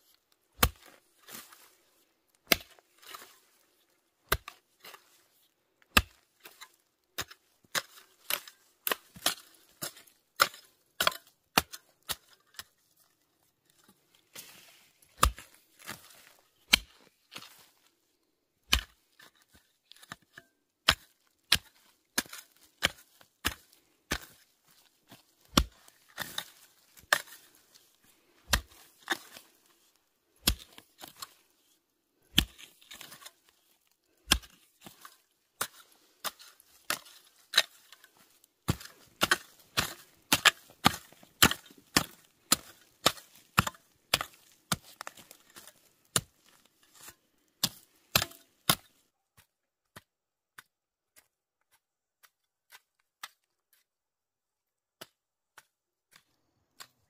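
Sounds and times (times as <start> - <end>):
fork chopping into dry soil: 0.6 - 1.7, 2.4 - 3.4, 5.9 - 12.7, 13.8 - 17.7, 18.7 - 29.6, 30.4 - 31.4, 32.3 - 33.6, 34.2 - 53.5.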